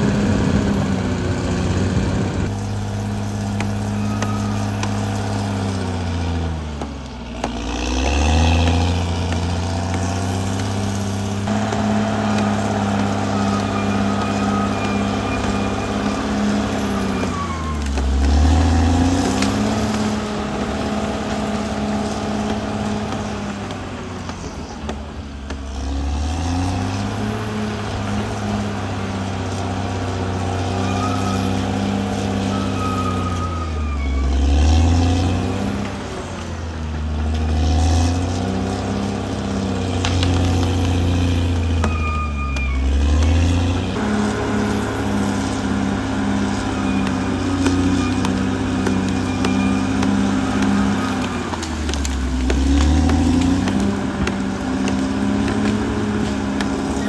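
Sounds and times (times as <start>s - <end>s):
bulldozer diesel engine running: 0.0s - 57.0s
faint high squeaks: 3.7s - 5.3s, 12.2s - 17.9s, 30.6s - 34.6s, 41.7s - 43.7s, 46.2s - 51.5s.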